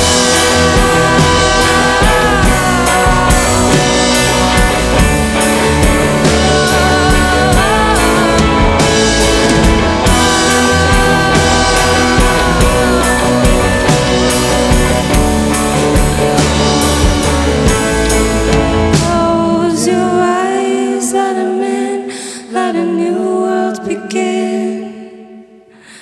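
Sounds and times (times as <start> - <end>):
upright double bass: 0.0 - 19.8
drum kit: 0.0 - 20.1
electric guitar: 0.0 - 22.2
woman singing lead vocal: 0.0 - 26.0.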